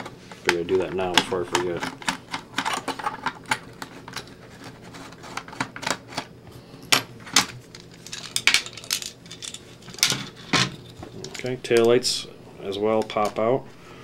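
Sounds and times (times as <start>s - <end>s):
plastic parts clicking and rattling: 7.3s - 11.9s.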